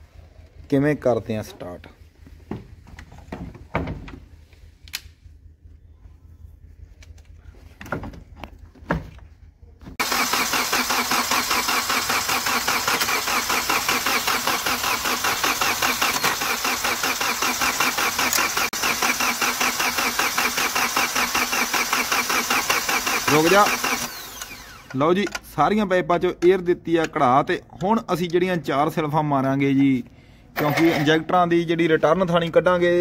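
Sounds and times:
diesel engine cranking: 0:10.0 - 0:25.2.

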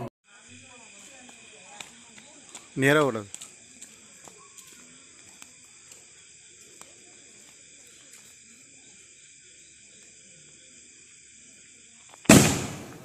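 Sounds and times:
faint ticks: 0:00.9 - 0:08.7.

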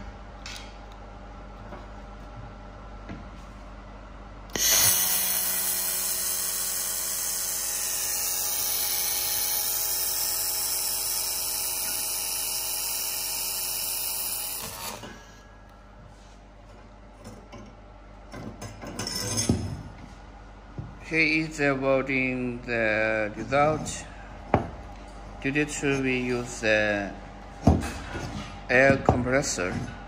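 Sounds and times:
laser welder high hiss: 0:04.6 - 0:15.2.

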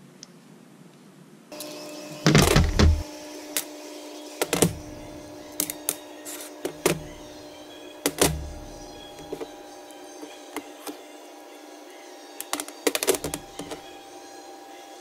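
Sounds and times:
steady low hum: 0:02.3 - 0:03.2, 0:04.5 - 0:10.0.

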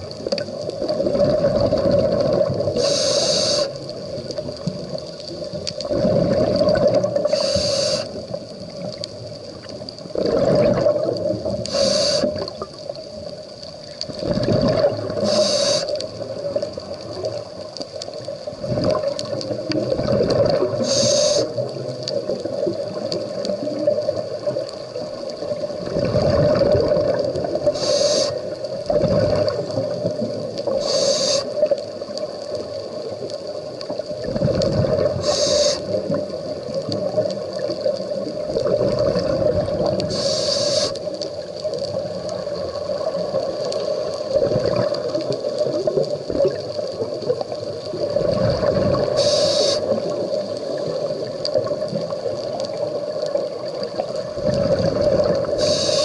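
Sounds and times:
exhale bubbling underwater: 0:00.0 - 0:13.1, 0:14.1 - 0:17.6, 0:18.5 - 0:40.9, 0:41.7 - 0:56.0
regulator inhale hiss: 0:02.7 - 0:03.9, 0:07.2 - 0:08.4, 0:11.6 - 0:12.5, 0:15.2 - 0:16.2, 0:20.7 - 0:21.7, 0:27.6 - 0:28.6, 0:30.7 - 0:31.8, 0:35.1 - 0:36.2, 0:40.0 - 0:41.2, 0:49.0 - 0:50.0, 0:55.4 - 0:56.0.

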